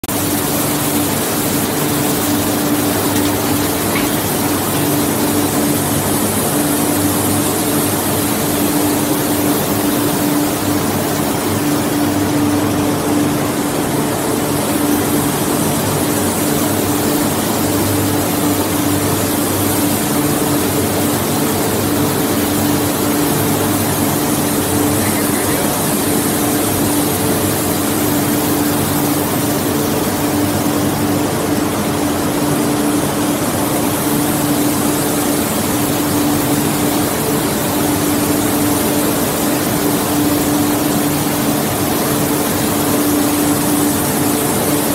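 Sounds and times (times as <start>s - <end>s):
ring rolling machine droning: 0.0s - 44.9s.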